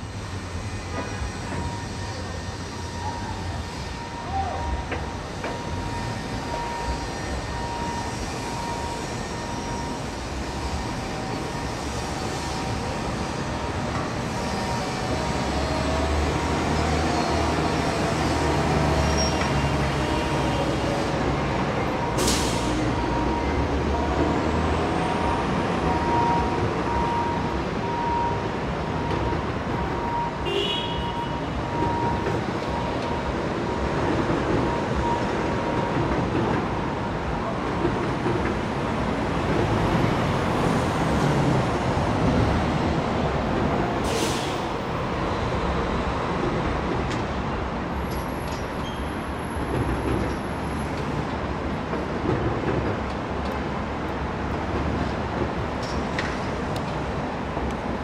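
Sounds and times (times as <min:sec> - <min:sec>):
passing traffic: 0:00.0 - 0:58.0
brief high squeal: 0:19.0 - 0:21.1.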